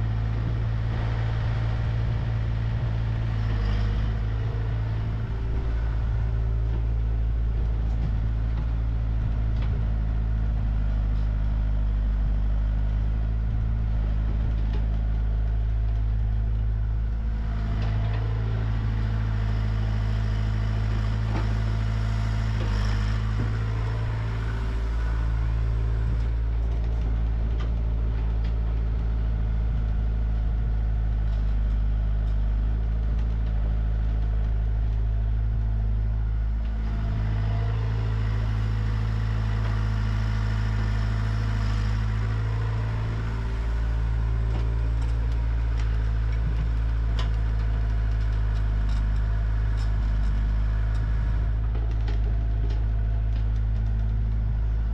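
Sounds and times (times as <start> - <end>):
excavator diesel engine: 0.0 - 54.9
light knocks and clatter: 6.5 - 12.7, 43.8 - 54.9.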